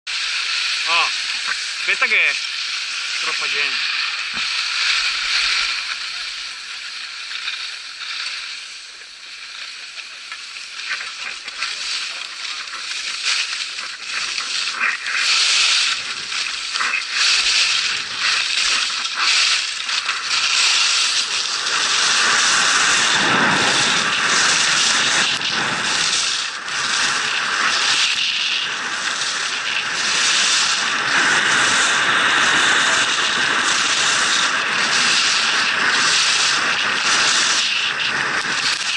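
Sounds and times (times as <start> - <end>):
skis scraping on snow: 0.1 - 38.9
wind rushing over microphone: 14.4 - 38.9.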